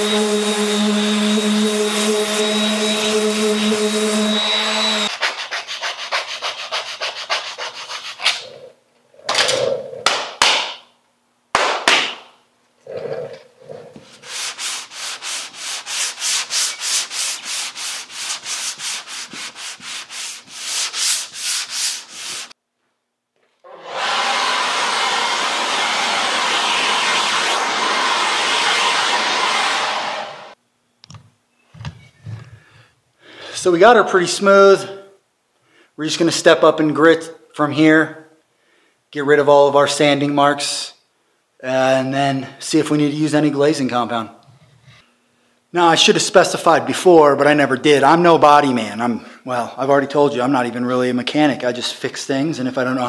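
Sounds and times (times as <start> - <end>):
sandpaper rubbing on filler: 0.0 - 8.4, 14.0 - 22.6.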